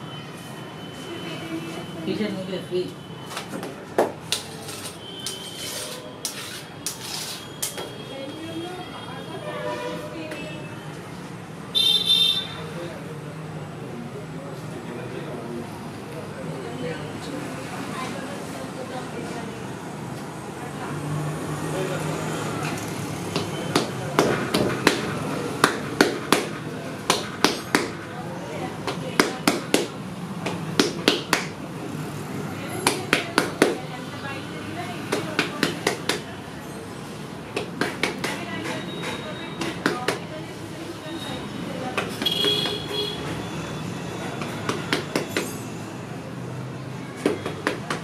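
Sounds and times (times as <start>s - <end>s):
hands slapping dough: 23.3s - 28.0s, 28.8s - 31.6s, 32.8s - 33.8s, 35.1s - 36.3s, 37.5s - 38.8s, 44.4s - 45.6s, 47.2s - 48.0s.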